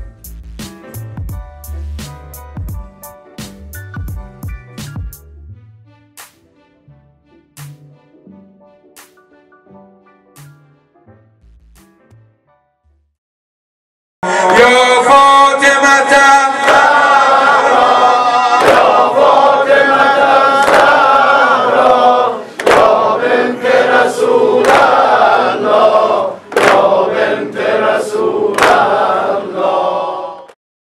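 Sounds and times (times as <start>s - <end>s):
men chanting in unison: 14.2s - 30.5s
chest-beating strikes: 18.6s - 19.4s, 22.6s - 23.1s, 26.5s - 27.0s.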